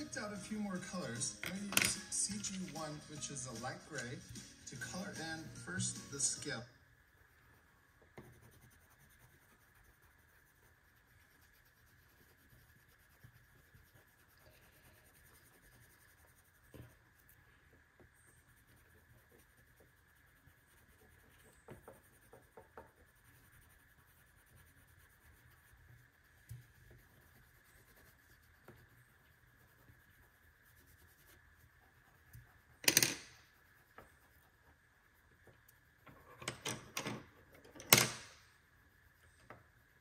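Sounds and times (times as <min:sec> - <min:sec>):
marker rubbing on paper: 0:07.1 - 0:35.5.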